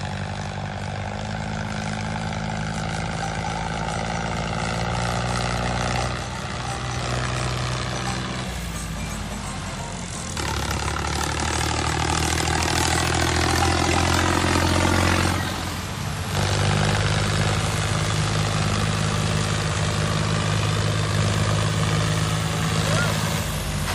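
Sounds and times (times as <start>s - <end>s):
tractor engine running: 0.0s - 23.9s.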